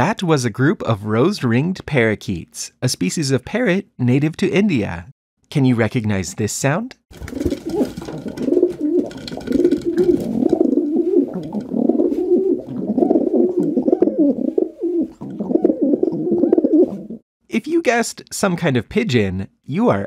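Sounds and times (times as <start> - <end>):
pigeons cooing: 7.2 - 17.2.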